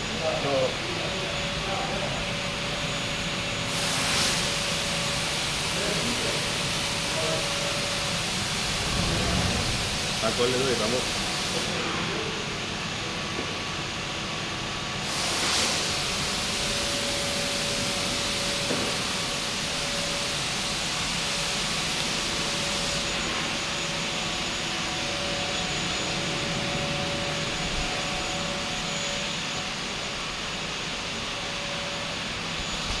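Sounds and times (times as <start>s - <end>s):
lathe machine hum with whine: 0.0s - 33.0s
strong hiss: 3.7s - 12.1s.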